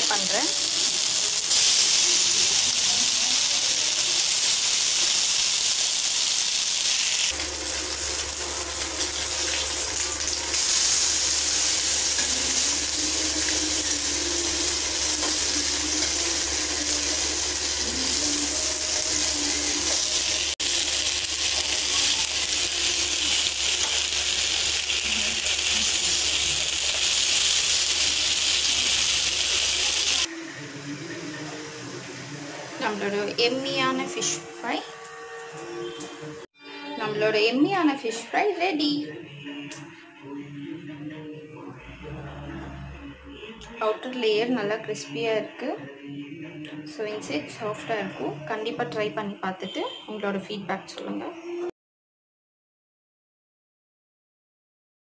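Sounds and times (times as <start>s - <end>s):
fish sizzling in hot oil: 0.1s - 30.3s.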